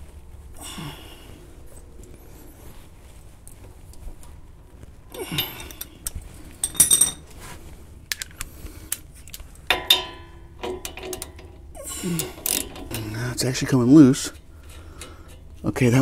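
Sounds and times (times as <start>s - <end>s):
metal hand tools clinking: 5.2s - 7.2s.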